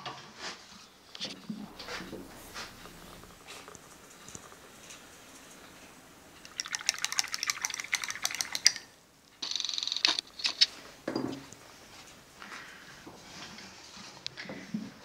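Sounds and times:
paintbrush rattling in glass: 6.4 - 10.2.

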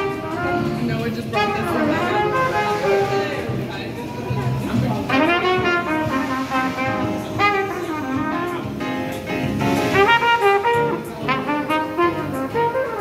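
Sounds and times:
trumpet playing jazz melody: 0.0 - 13.0.

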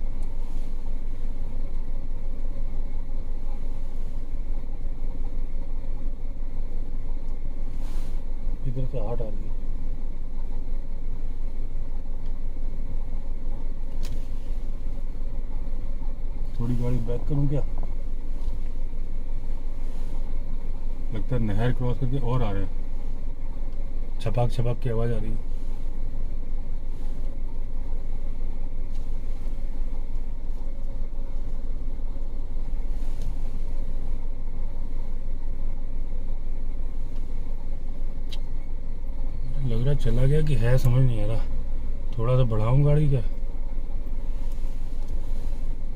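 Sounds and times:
car engine idling: 0.0 - 45.9
sharp click: 38.2 - 38.6.

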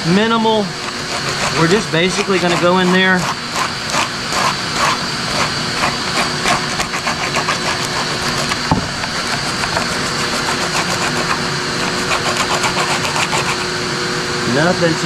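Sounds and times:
sandpaper rasping on fiberglass: 0.0 - 13.8
shop vacuum running: 0.0 - 15.0
sharp knock: 8.7 - 9.2.

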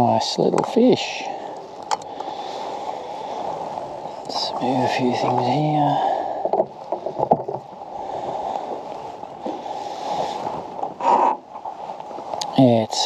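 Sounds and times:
water lapping at hull: 0.0 - 13.0
clicks and knocks on hull: 6.2 - 9.6.

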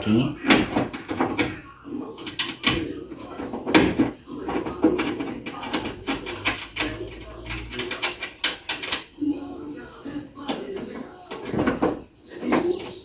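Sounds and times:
clicks and metallic knocks: 2.2 - 9.2.

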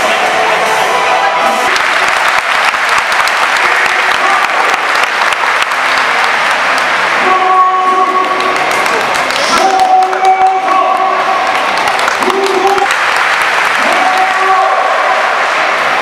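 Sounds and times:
music: 0.0 - 12.8
crowd applauding: 0.0 - 16.0.

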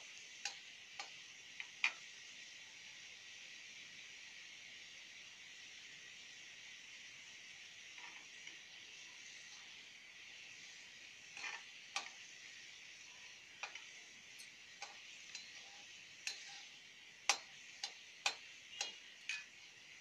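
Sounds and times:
seeds sizzling in hot oil: 0.0 - 20.0
spatula scraping a metal pan: 11.3 - 12.2, 13.2 - 19.7.

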